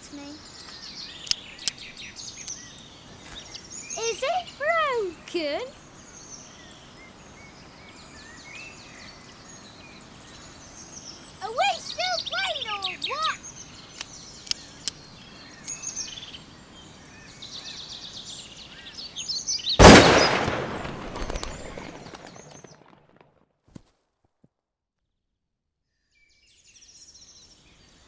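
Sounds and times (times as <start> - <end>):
woodland birds singing: 0.0 - 22.9, 25.9 - 28.0
pistol shot with echo: 19.8 - 22.5.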